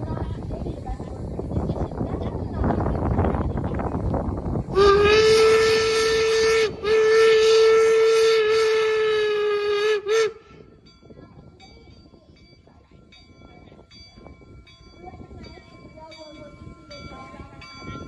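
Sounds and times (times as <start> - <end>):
steam locomotive whistle: 4.7 - 10.6.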